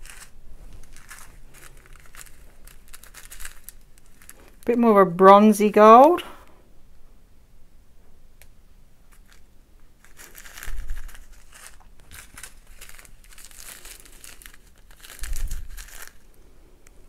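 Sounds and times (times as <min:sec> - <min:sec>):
plastic bags crinkling: 0:00.0 - 0:04.7, 0:09.1 - 0:16.4.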